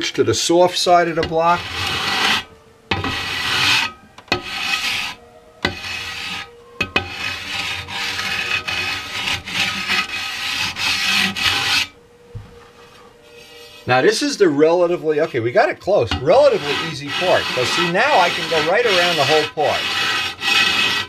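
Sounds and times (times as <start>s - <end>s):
sanding block rubbing: 1.6s - 11.9s, 16.3s - 21.0s.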